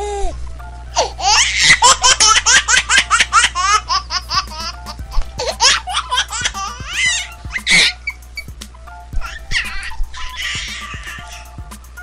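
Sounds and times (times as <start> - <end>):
small child giggling: 1.2 - 8.5.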